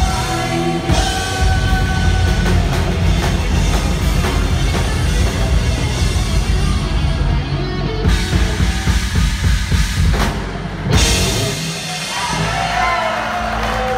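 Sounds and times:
drum fills with bass drum: 0.0s - 13.9s
live heavy metal band: 0.0s - 13.9s
audience whooping: 11.7s - 13.9s.

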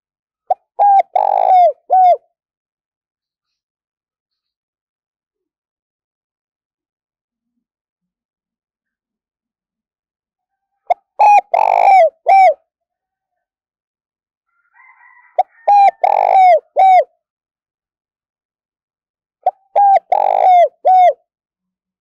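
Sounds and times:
dove cooing: 0.5s - 2.2s, 10.9s - 12.6s, 15.4s - 17.1s, 19.4s - 21.2s.

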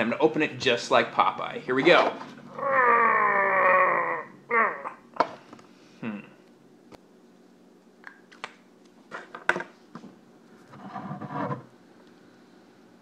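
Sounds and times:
person grunting: 2.5s - 5.1s, 6.0s - 6.4s.

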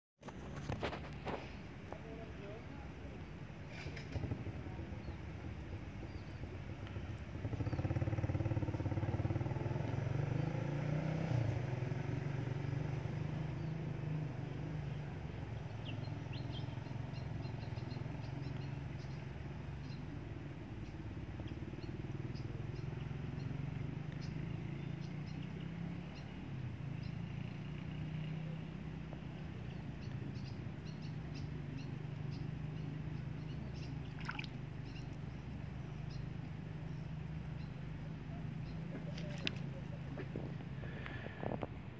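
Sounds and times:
faint high chirps and ticks: 14.9s - 40.3s.

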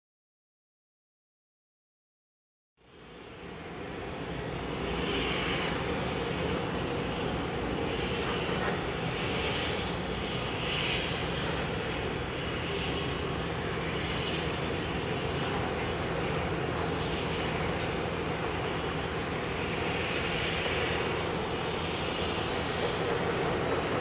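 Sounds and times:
distant engine drone: 2.8s - 24.0s
faint clicks: 5.5s - 5.9s, 8.2s - 9.7s, 17.3s - 17.6s.

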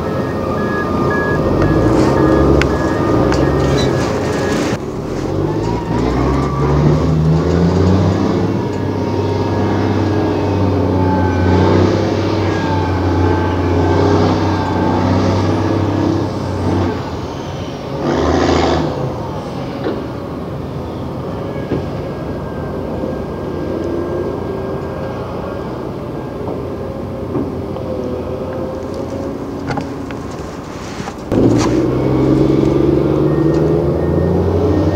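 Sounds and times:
diesel engine under load: 0.0s - 34.9s.

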